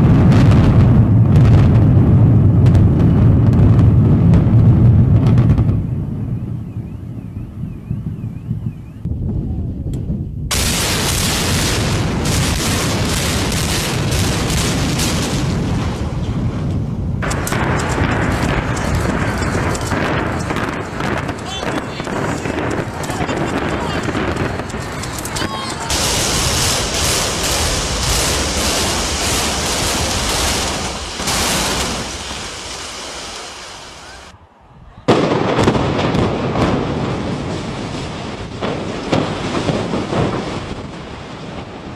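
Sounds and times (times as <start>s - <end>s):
sharp cracks: 10.5s - 34.3s
building collapsing roar: 10.5s - 41.9s
debris crashing down: 17.2s - 34.3s.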